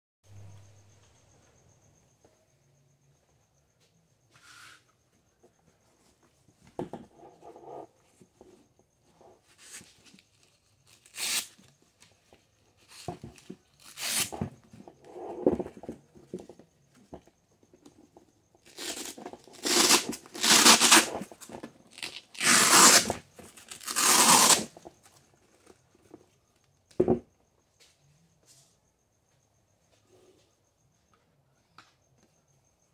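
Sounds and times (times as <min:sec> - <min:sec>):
velcro ripping apart: 0:10.9 - 0:11.6, 0:13.8 - 0:14.4, 0:18.7 - 0:21.2, 0:21.9 - 0:24.7.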